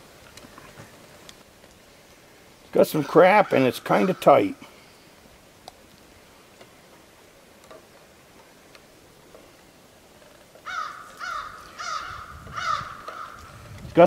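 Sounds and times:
crow cawing: 3.3 - 4.8, 10.6 - 13.6
faint clicks: 5.6 - 7.0.

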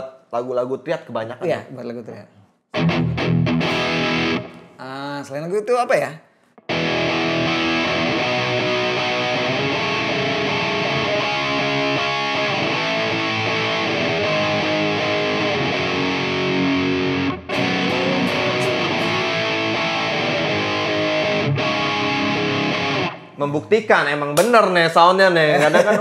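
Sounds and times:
overdriven electric guitar: 2.8 - 4.8, 6.6 - 23.4.

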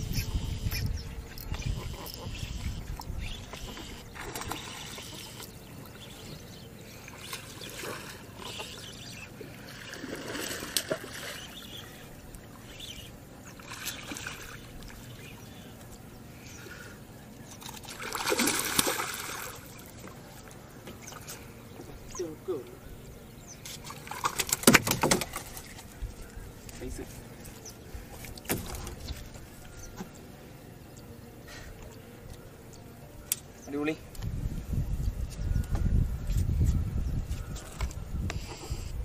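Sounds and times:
water splashing and trickling: 0.0 - 16.8, 17.4 - 30.2.

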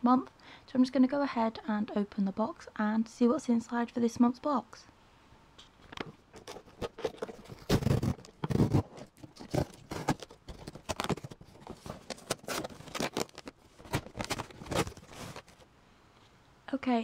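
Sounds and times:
cardboard box being opened: 6.4 - 15.6.

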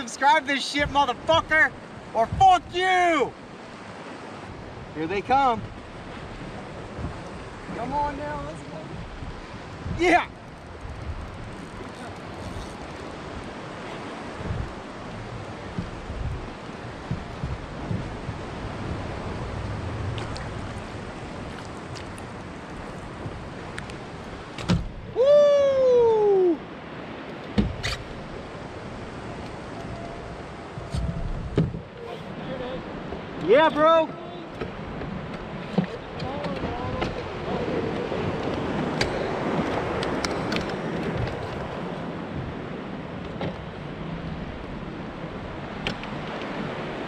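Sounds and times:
lapping sea water: 0.0 - 47.0
wind on microphone: 3.4 - 33.6, 34.6 - 47.0
person whooping: 25.1 - 26.6.

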